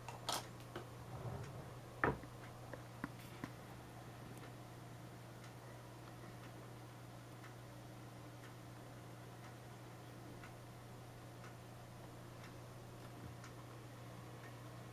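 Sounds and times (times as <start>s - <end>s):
steady low hum: 0.0s - 14.9s
clock ticking: 10.4s - 12.8s.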